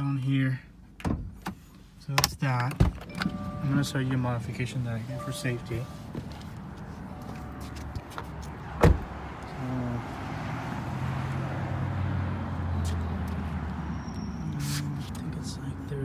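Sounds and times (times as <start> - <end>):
car door shutting: 7.2 - 9.2.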